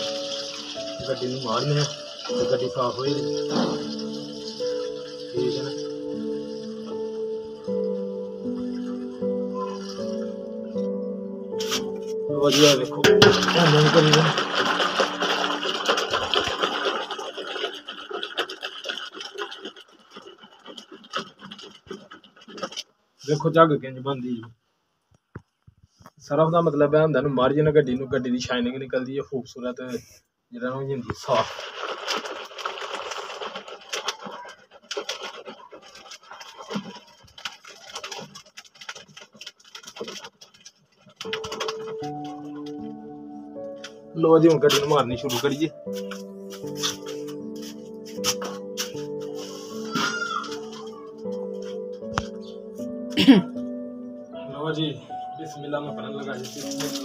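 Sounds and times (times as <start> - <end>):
water sloshing in metal basin: 0.0 - 6.9, 12.7 - 22.9, 31.3 - 42.7.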